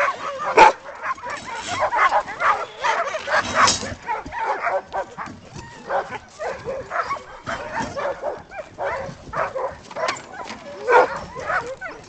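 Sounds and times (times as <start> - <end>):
dogs barking and yipping: 0.0 - 12.0.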